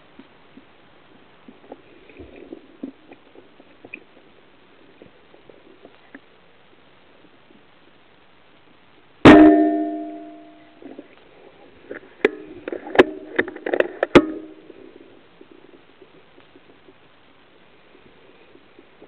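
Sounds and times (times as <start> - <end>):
rifle shot with metallic ring: 9.3 - 10.7.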